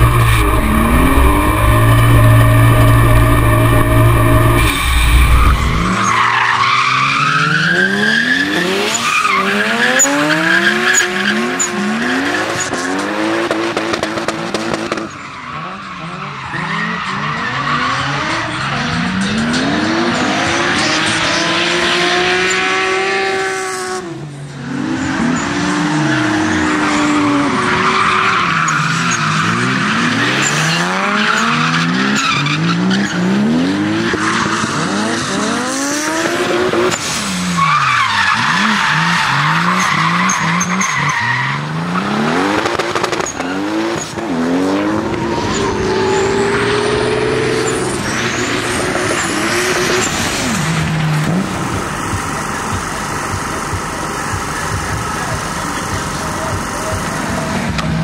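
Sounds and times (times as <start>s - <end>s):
engine revving: 0.0s - 6.1s, 28.9s - 37.5s, 41.6s - 58.0s
tyres squealing and skidding: 0.0s - 23.7s, 24.6s - 58.0s.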